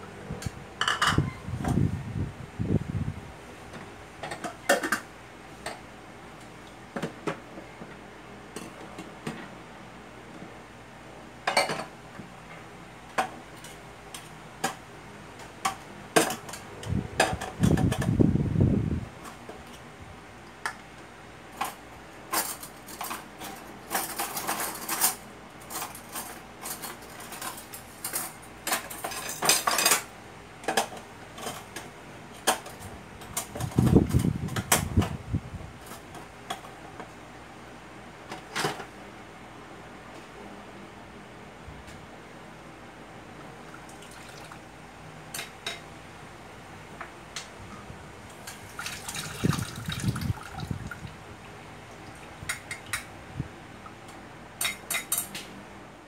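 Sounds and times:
dishes clinking: 0.8s - 1.3s.

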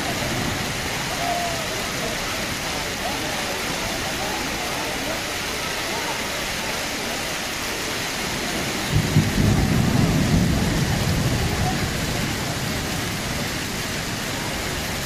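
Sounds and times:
rain and hail falling: 0.0s - 15.0s
thunder rumbling: 8.4s - 15.0s.

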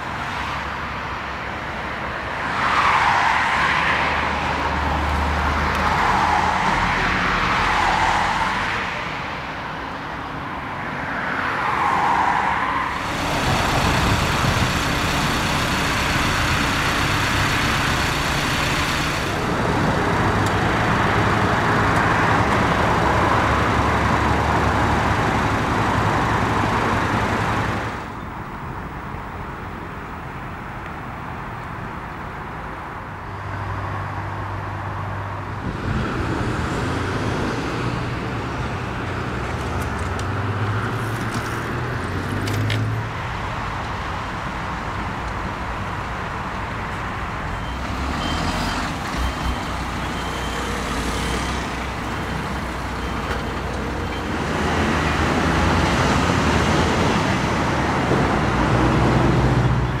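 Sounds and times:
vehicles passing on a road: 0.0s - 60.0s.

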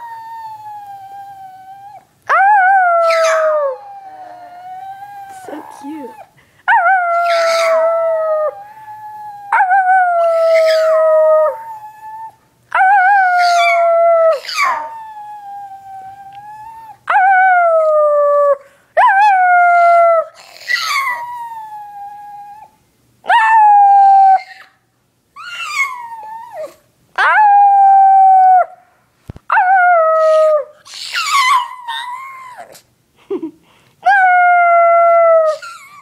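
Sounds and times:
dog howling: 0.0s - 6.2s, 6.8s - 18.4s, 25.4s - 28.7s, 29.5s - 32.8s, 34.1s - 36.0s.

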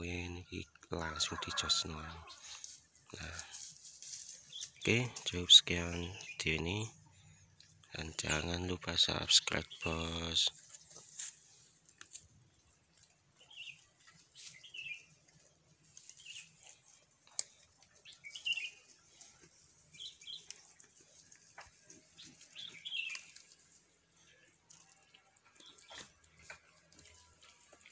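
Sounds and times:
small birds chirping faintly: 0.0s - 27.9s
goats rustling through dry grass: 1.9s - 5.4s, 9.8s - 27.9s.

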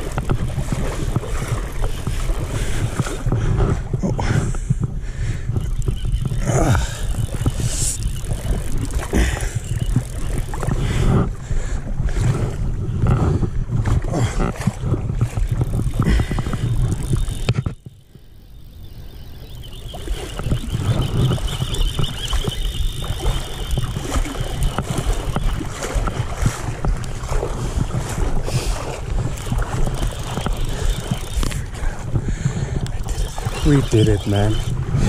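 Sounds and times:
wind buffeting microphone: 0.0s - 35.0s
thin high whine: 5.5s - 10.9s, 15.6s - 26.2s, 29.3s - 31.8s, 32.8s - 34.9s.

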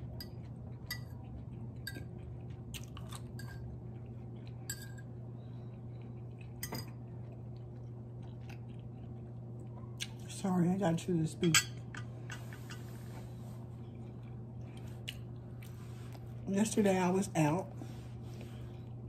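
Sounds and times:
chewing: 0.0s - 10.2s, 13.5s - 16.3s
steady low hum: 0.0s - 19.0s
fork clinking on a plate: 0.2s - 1.1s, 4.7s - 5.0s, 11.4s - 12.8s.

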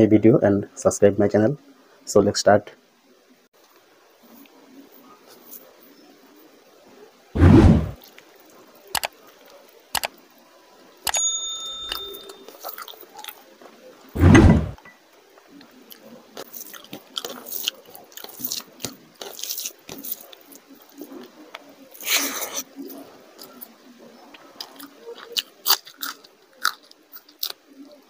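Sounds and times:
loud low thump: 7.4s - 8.0s, 14.2s - 14.8s
bright bell-like chime: 11.1s - 12.6s
wet squishing of hand mixing rice: 15.9s - 23.6s.

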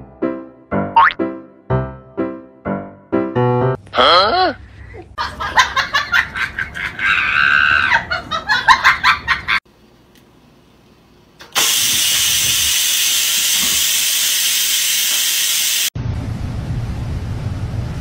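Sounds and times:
rice cooker steam hissing: 11.4s - 15.9s.

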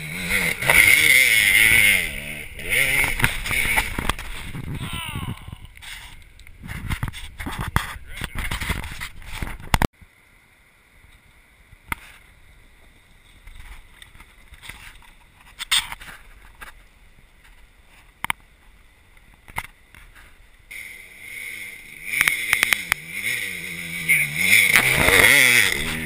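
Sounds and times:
dirt bike engine: 0.0s - 9.8s, 19.0s - 26.0s.

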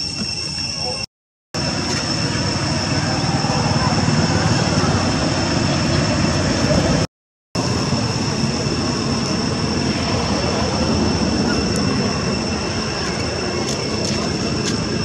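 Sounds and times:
high-pitched whine: 0.0s - 15.0s
low rumbling noise: 1.6s - 15.0s.

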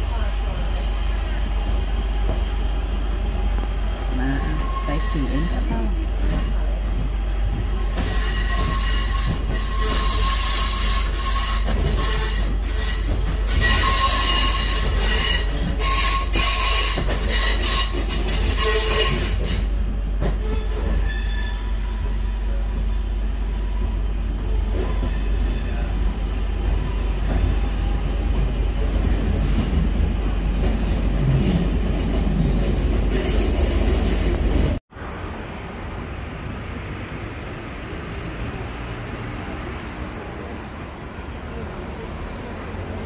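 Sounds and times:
low rumble of running train: 0.0s - 43.0s
train wheels squealing: 7.8s - 19.7s, 20.4s - 27.8s.

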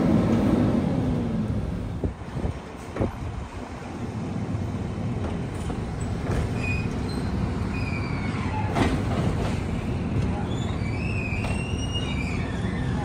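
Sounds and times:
short high squeaks: 6.5s - 8.9s, 10.4s - 13.0s.

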